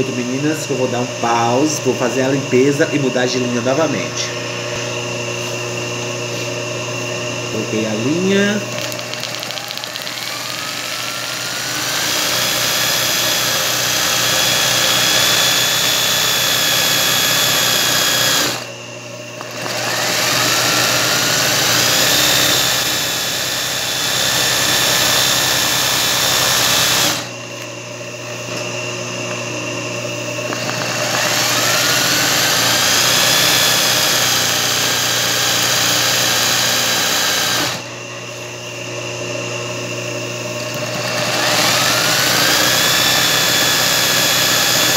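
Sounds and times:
steady motor hum: 0.0 - 44.9
sewing machine stitching: 8.8 - 18.6.

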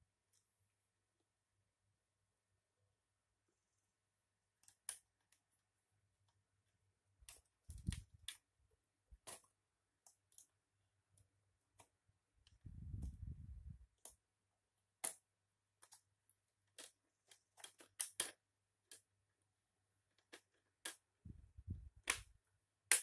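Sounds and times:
small plastic clicks: 4.6 - 5.6, 7.2 - 8.5, 9.1 - 14.3, 14.9 - 19.2, 20.0 - 23.0.

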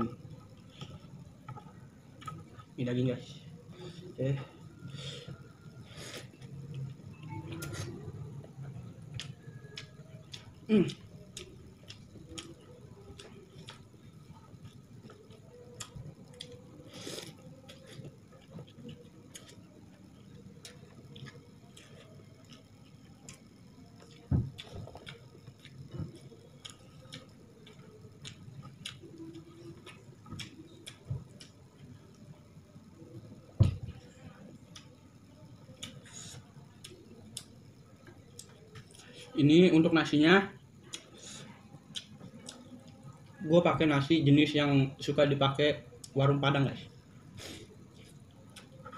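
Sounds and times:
chewing and lip smacking: 8.9 - 32.3, 35.6 - 39.1, 40.8 - 43.2, 47.4 - 48.9.

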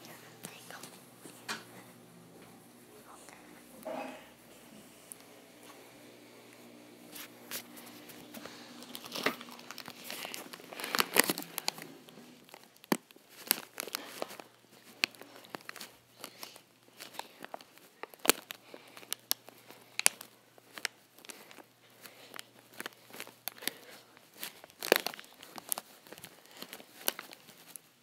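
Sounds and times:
crinkling and rustling handling noise: 0.0 - 28.0
sharp clicks and crackles: 7.2 - 27.9.

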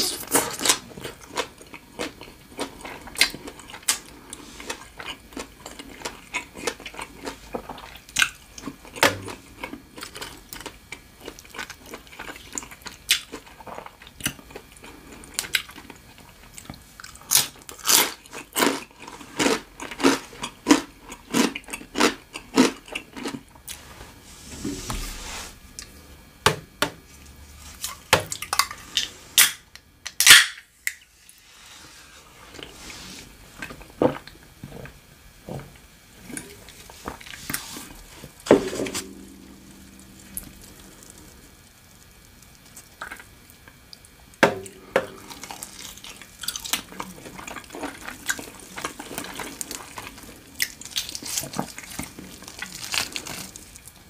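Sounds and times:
person chewing and crunching: 0.0 - 23.9, 39.0 - 54.0.

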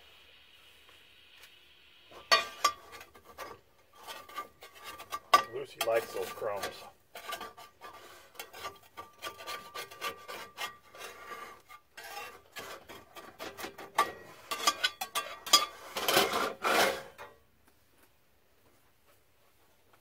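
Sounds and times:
metal spatula scraping skillet: 2.1 - 17.4.

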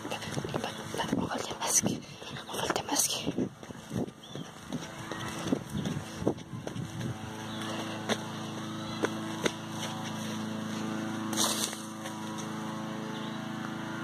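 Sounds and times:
low motor drone: 0.0 - 14.0.

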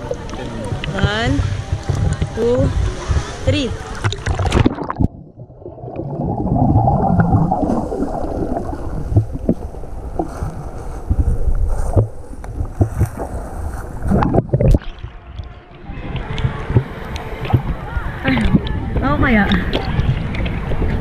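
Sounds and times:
bubbling: 0.0 - 21.0
muffled underwater rushing water: 0.0 - 21.0
water rushing as camera surfaces: 0.0 - 21.0.

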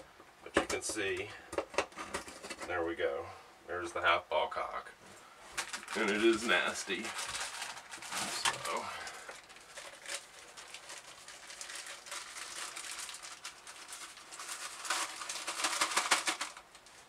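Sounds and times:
plastic bag crinkling: 5.4 - 17.0.

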